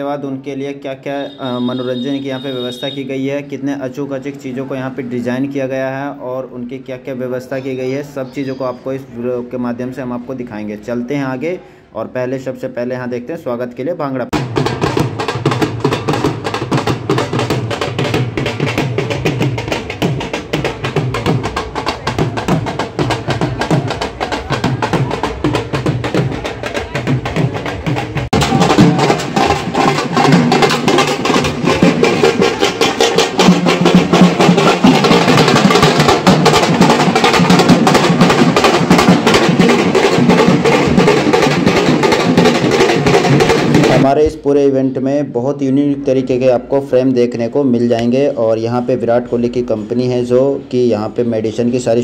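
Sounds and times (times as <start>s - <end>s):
fast dhol drum beat: 1.2s - 5.8s, 14.3s - 44.4s
loud full music: 28.0s - 44.0s.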